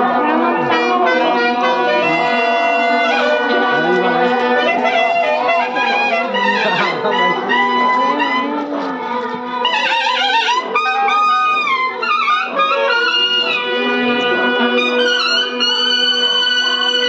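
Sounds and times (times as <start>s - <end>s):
held low notes: 0.0s - 10.7s
wind band playing a melody: 0.0s - 17.0s.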